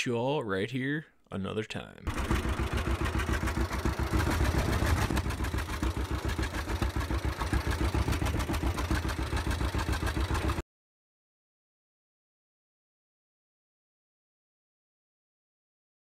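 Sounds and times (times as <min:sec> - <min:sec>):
tractor engine running: 0:02.1 - 0:10.6.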